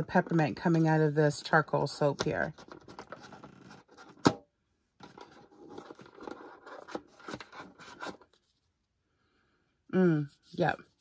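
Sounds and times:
packaging rustling and scraping: 0:02.3 - 0:04.3, 0:05.0 - 0:08.7.

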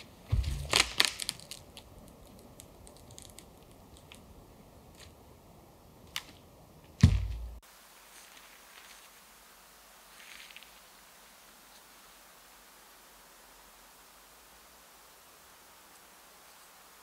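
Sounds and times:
wooden pole thudding on ground: 0:00.3 - 0:01.0, 0:07.0 - 0:07.6
dead tree falling with thud: 0:00.3 - 0:01.4, 0:07.0 - 0:07.6
footsteps crunching on dry twigs: 0:00.3 - 0:01.6.

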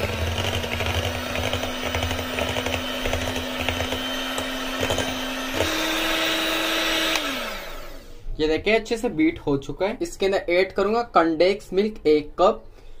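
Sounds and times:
electric hand mixer running: 0:00.0 - 0:08.2.

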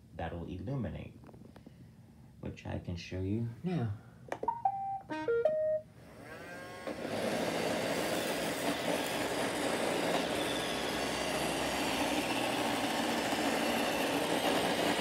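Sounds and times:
robot vacuum whirring: 0:06.0 - 0:15.0.

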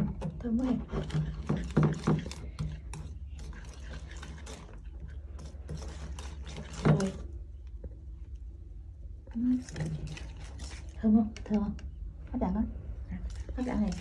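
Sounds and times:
wire whisk beating batter in bowl: 0:00.0 - 0:08.0, 0:09.4 - 0:11.6, 0:13.2 - 0:14.0.

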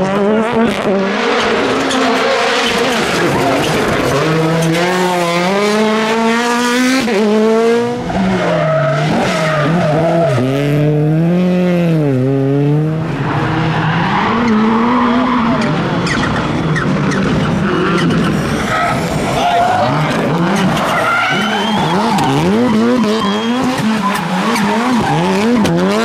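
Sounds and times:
rally car engines revving: 0:00.0 - 0:26.0.

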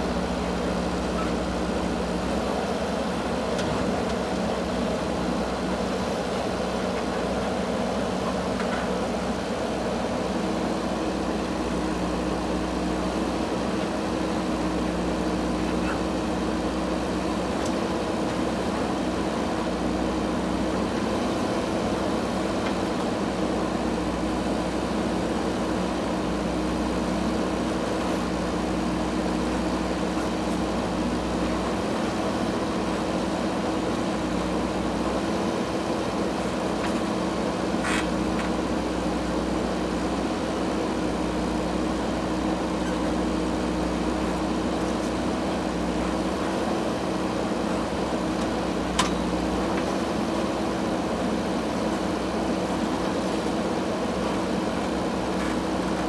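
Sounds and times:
diesel engine droning: 0:00.0 - 0:56.0
backhoe arm digging soil: 0:35.2 - 0:38.6.

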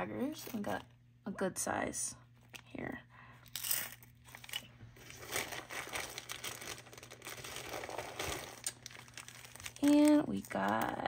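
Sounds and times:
plastic bag crinkling: 0:03.4 - 0:11.0.

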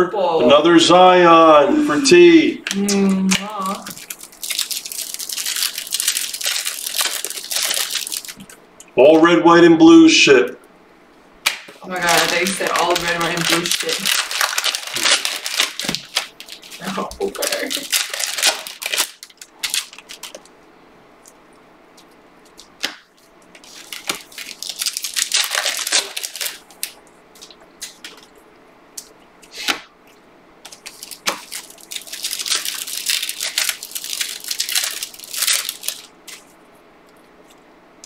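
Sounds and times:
trading cards rustling: 0:02.7 - 0:08.6, 0:11.7 - 0:20.6, 0:22.0 - 0:28.3, 0:30.6 - 0:37.6.

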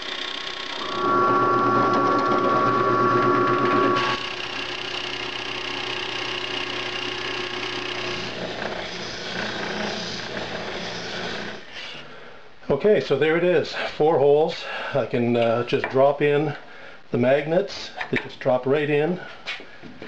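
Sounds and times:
spindle sander running: 0:00.0 - 0:11.6
drill press boring wood: 0:00.0 - 0:11.7.

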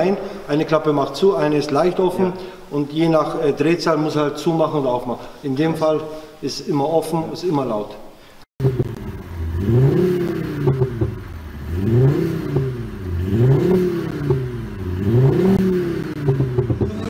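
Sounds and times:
car engine revving: 0:08.6 - 0:17.0.

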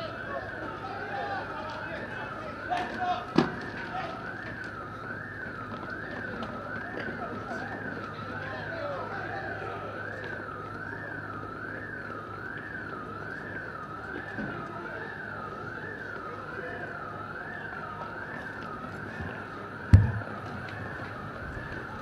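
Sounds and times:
police siren wailing: 0:00.0 - 0:22.0
sharp thump: 0:19.9 - 0:20.3.

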